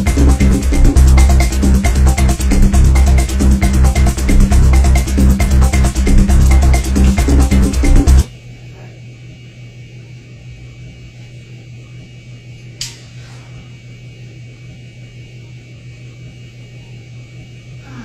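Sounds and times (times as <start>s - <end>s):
low electrical hum: 0.0s - 18.0s
sharp click: 12.8s - 13.1s.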